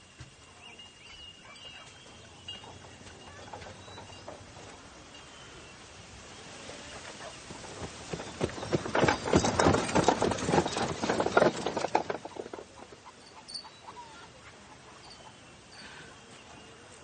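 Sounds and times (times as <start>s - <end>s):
horse hooves clip-clopping: 0.0s - 5.4s, 6.9s - 13.9s.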